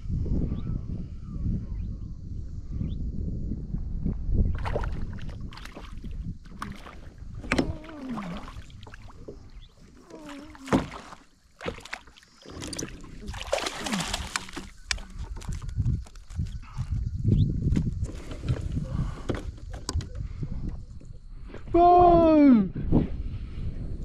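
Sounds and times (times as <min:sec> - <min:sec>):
water splashing: 0:04.6 - 0:16.4
gear knocking against kayak hull: 0:05.6 - 0:09.5.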